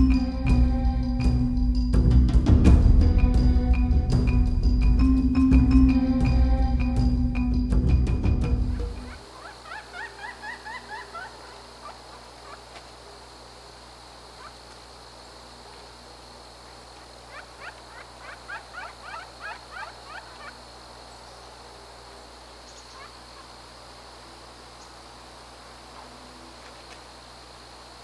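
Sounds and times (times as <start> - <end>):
woodpecker calling: 8.4 - 13.4, 14.2 - 15.5, 16.6 - 23.8.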